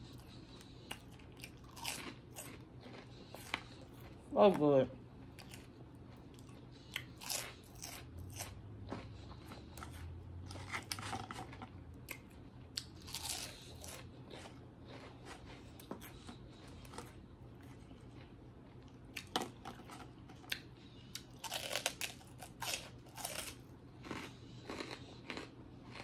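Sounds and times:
pork rinds crunching: 0.9s - 3.6s, 6.3s - 8.6s, 10.5s - 15.1s, 21.2s - 26.0s.

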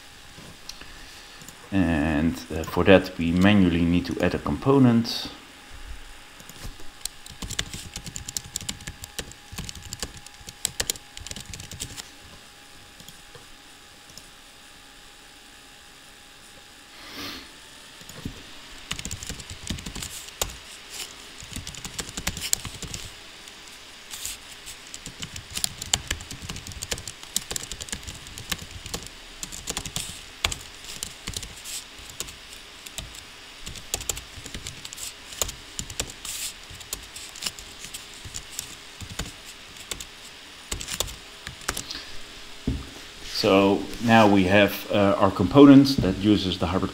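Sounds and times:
computer keyboard typing: 6.4s - 12.0s, 18.9s - 20.6s, 21.4s - 23.1s, 24.8s - 40.1s, 40.7s - 41.8s.

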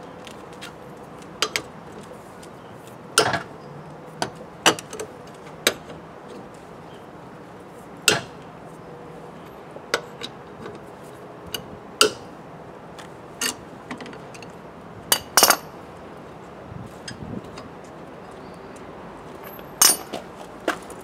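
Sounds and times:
wheel brace clinking on nuts: 13.4s - 15.8s, 19.3s - 21.0s.

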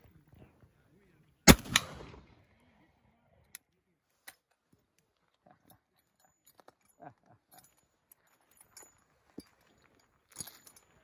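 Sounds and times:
quieter crack: 1.5s - 2.4s
rifle shot: 1.5s - 2.4s.

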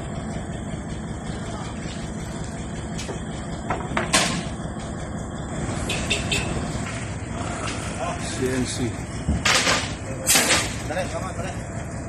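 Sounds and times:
truck engine rumbling: 0.0s - 12.0s
wooden timbers knocking: 3.0s - 4.5s.

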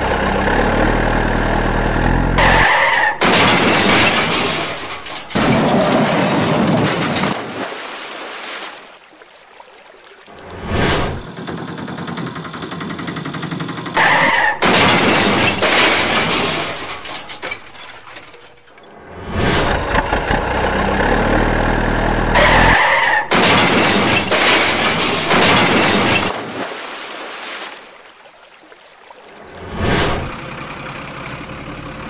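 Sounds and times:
tyre screech: 2.4s - 3.3s, 14.0s - 14.7s, 22.3s - 23.4s
crashing and breaking noise: 2.4s - 7.9s, 10.7s - 21.7s, 22.3s - 26.7s.

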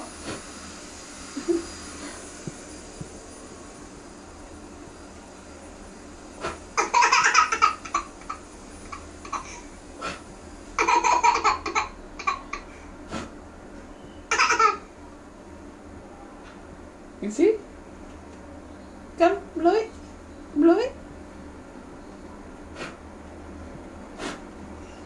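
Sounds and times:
toddler laughing: 6.8s - 9.6s, 10.8s - 12.7s, 14.3s - 14.8s.

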